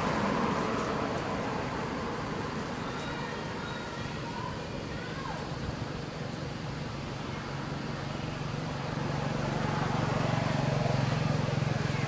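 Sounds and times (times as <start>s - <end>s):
vehicle engine running: 7.7s - 12.0s.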